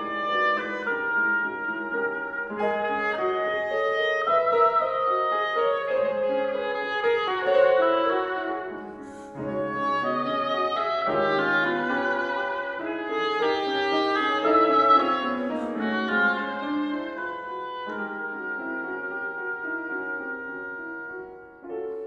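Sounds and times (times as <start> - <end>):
oboe melody: 0.0 - 22.0
piano accompaniment: 0.0 - 22.0.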